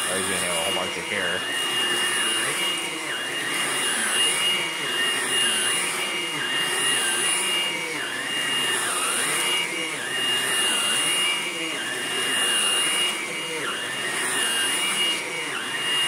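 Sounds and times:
stick vacuum running over carpet: 0.0s - 16.0s.

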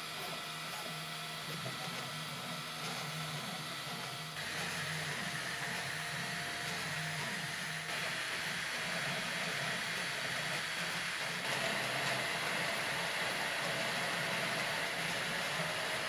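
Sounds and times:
stepper motors humming: 0.0s - 16.0s.

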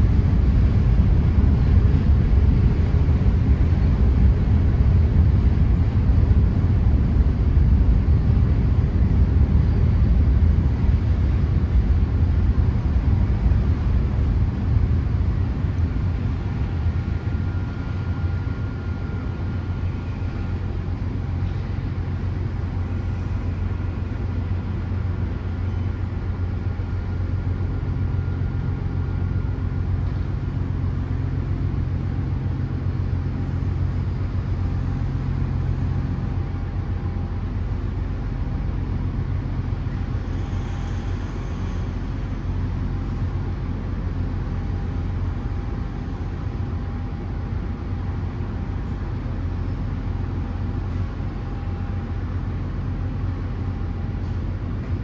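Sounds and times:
heavy engines rumbling: 0.0s - 55.0s
faint whining tones: 16.3s - 30.6s.

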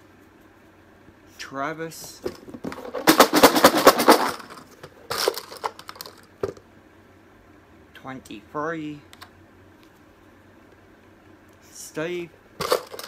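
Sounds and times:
box rattling when shaken: 2.2s - 6.6s, 12.6s - 13.0s.

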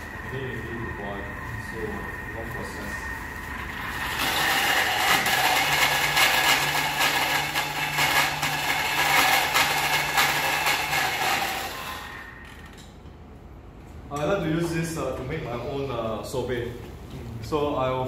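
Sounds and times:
food processor blending: 3.5s - 12.4s.

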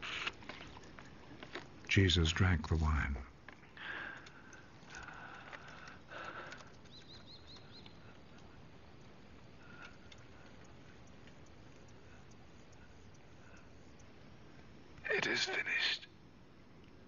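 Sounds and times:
high bird chirps: 6.8s - 8.1s.

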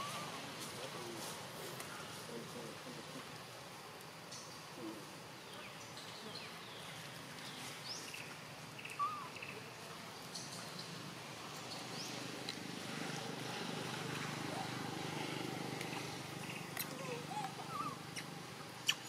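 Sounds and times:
forest ambience: 0.0s - 19.0s
bird chirps: 7.9s - 9.6s, 16.4s - 19.0s.

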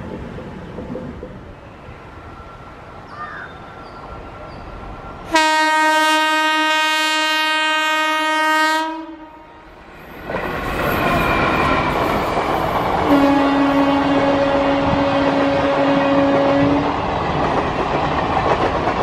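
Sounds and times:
train rumbling and clacking past: 0.0s - 19.0s
train horn long blast: 5.3s - 9.7s, 13.0s - 17.0s.

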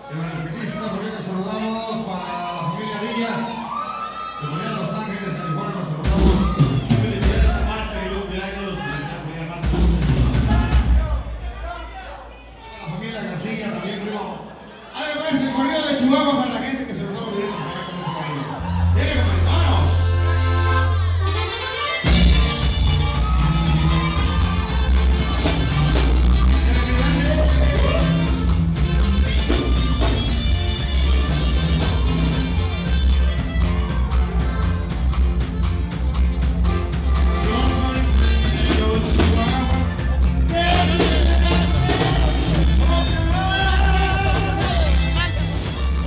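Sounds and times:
guitar: 0.0s - 13.0s, 18.0s - 46.0s
bass: 0.0s - 13.8s, 18.0s - 46.0s
drums: 4.8s - 12.6s, 21.3s - 46.0s
saxophone: 20.1s - 46.0s
person singing: 32.3s - 46.0s.

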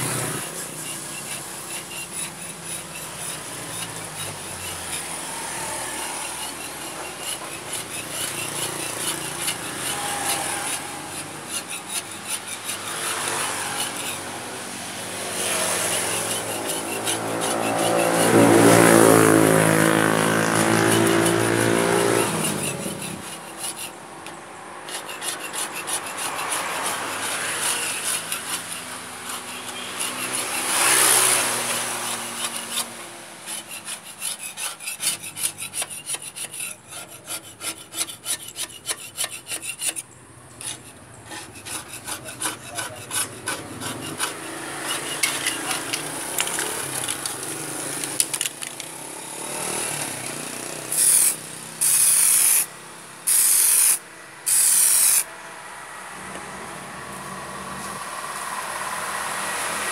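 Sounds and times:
metal scraper scraping paint: 0.0s - 55.3s
passing vehicle engine: 12.5s - 33.5s, 40.1s - 53.4s, 54.0s - 59.9s.

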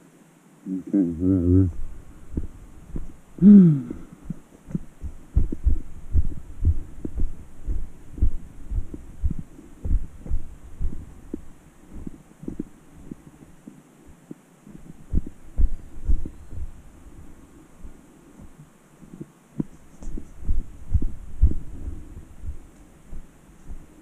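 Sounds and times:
footsteps on dirt trail: 1.7s - 3.2s, 4.3s - 13.2s, 14.7s - 18.6s, 19.6s - 24.0s
person grunting: 3.4s - 4.1s.

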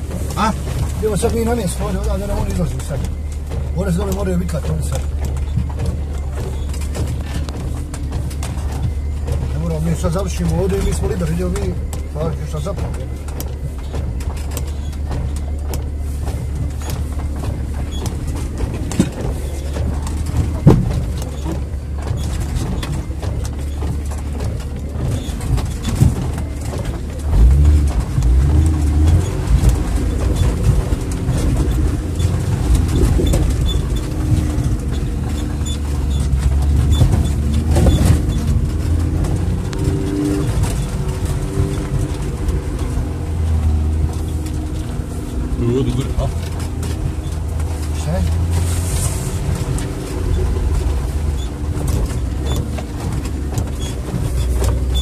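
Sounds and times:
engine running under load: 0.0s - 55.0s.

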